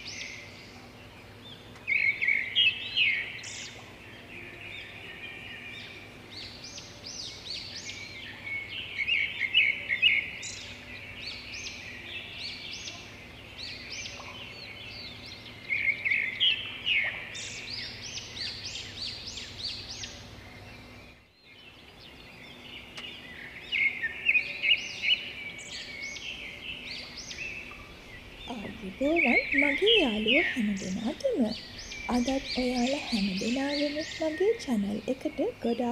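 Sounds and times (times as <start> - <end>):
songbirds chirping: 0.0 - 35.9.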